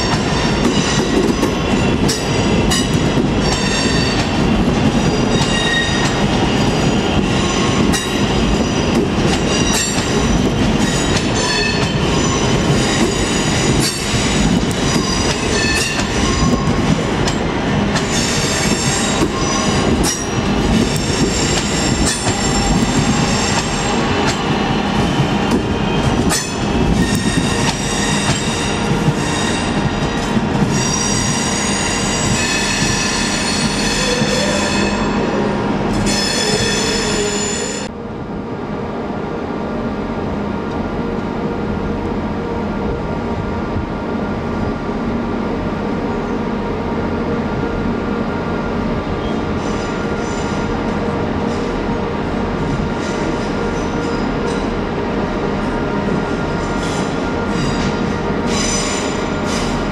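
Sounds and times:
rail joint clicks: 0.0s - 37.1s
train rumble: 0.0s - 59.9s
train wheels squealing: 5.0s - 16.8s, 18.0s - 24.0s, 25.8s - 35.4s, 36.0s - 37.9s, 49.2s - 50.7s, 56.2s - 59.8s.

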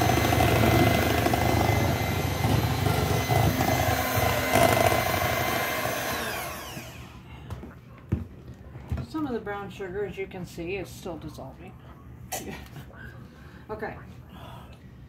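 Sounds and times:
electric hand mixer whirring: 0.0s - 7.2s.

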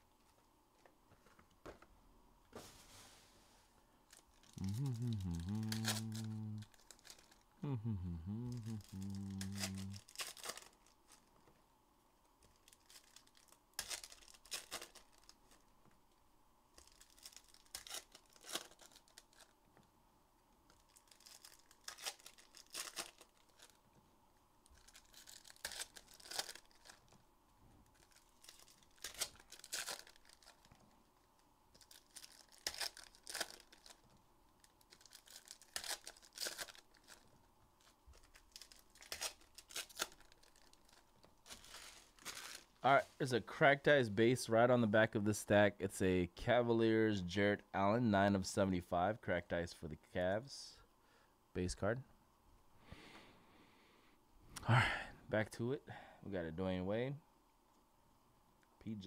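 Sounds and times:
wrappers tearing and crinkling: 4.1s - 7.5s, 8.4s - 11.3s, 12.4s - 15.6s, 16.7s - 19.6s, 20.7s - 23.8s, 24.6s - 27.2s, 27.8s - 42.8s.

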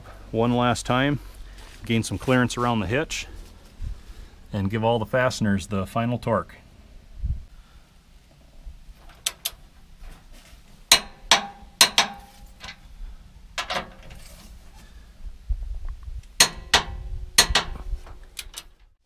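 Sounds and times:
torque wrench clicking on bolts: 9.2s - 9.6s, 10.9s - 12.8s, 16.2s - 17.8s.

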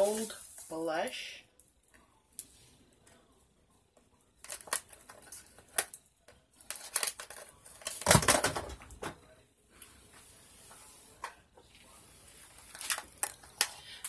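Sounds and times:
small items clicking and rattling: 4.4s - 6.0s, 6.6s - 8.6s, 12.6s - 14.0s.

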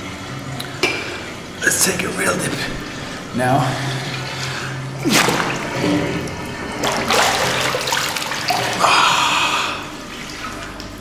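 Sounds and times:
water splashing and rushing: 5.0s - 8.8s.

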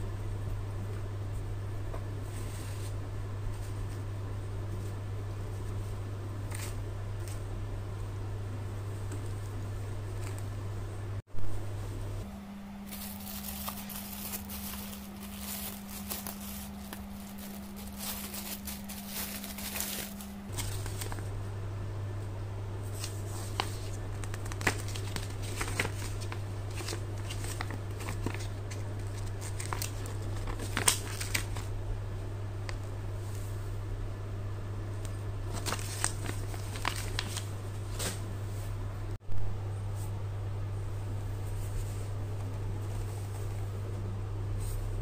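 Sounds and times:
paper pages rustling: 12.8s - 21.3s, 22.8s - 31.7s, 35.5s - 38.2s
plastic wrapping crinkling: 12.8s - 21.4s, 22.9s - 31.7s, 35.5s - 38.2s.

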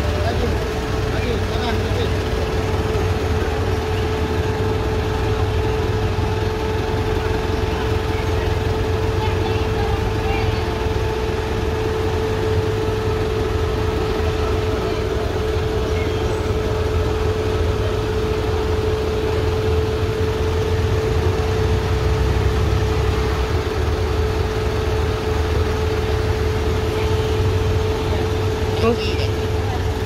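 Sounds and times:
steady whine: 0.0s - 30.0s
vehicle engine droning: 0.0s - 30.0s.

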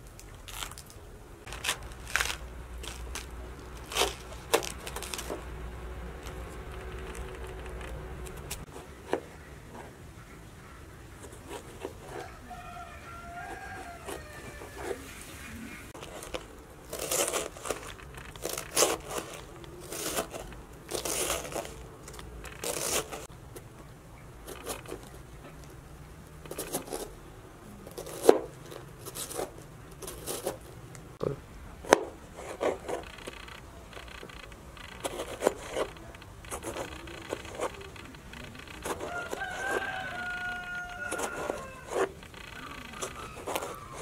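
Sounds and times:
knife crunching through cabbage: 0.0s - 5.5s, 16.0s - 23.3s, 26.5s - 27.1s, 27.8s - 30.8s, 38.6s - 44.0s.

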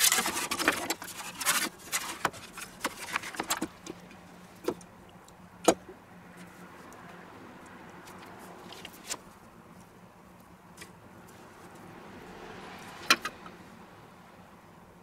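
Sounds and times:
handling food on metal peel: 0.0s - 4.0s.

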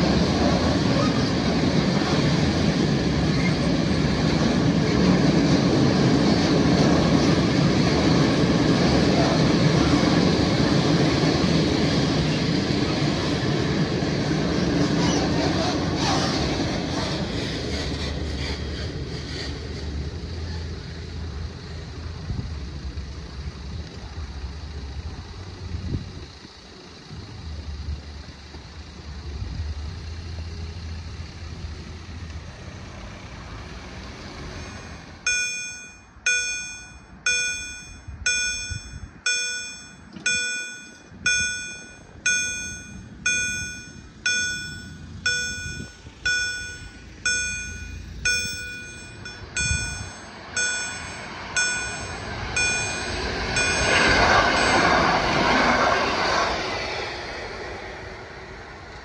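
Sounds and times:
low vehicle rumble: 0.0s - 59.0s
level crossing warning bell: 34.4s - 55.2s.

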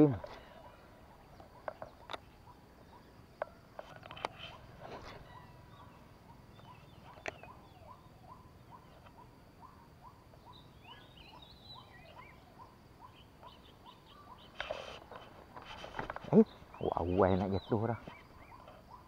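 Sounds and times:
faint repeated rising bird call: 0.0s - 19.0s
high bird chirps: 4.2s - 14.9s.

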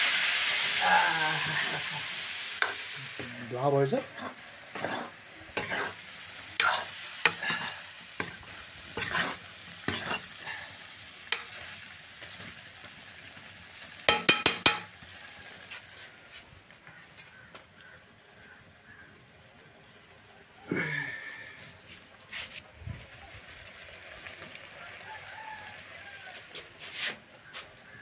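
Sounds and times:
high sizzle of frying: 0.0s - 28.0s
ladle scraping iron pan: 4.0s - 6.0s, 6.6s - 10.4s.

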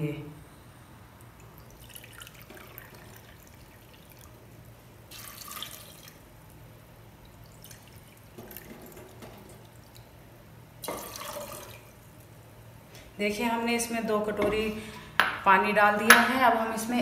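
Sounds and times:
water splashing into a pot: 1.4s - 6.6s, 7.2s - 10.2s, 10.8s - 12.2s.

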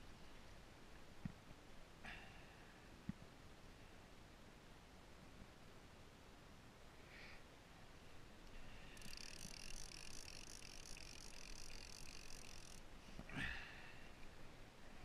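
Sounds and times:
fishing reel drag buzzing: 8.6s - 12.9s.

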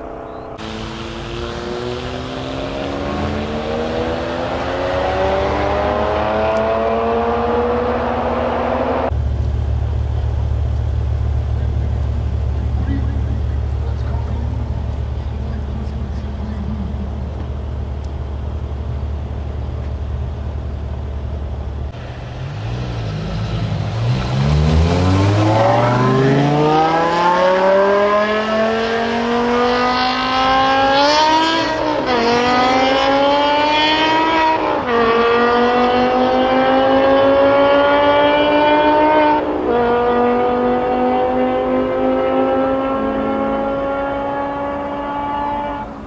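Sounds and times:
car engine accelerating hard: 0.0s - 46.0s
car engine idling: 0.3s - 6.3s, 9.1s - 27.0s.

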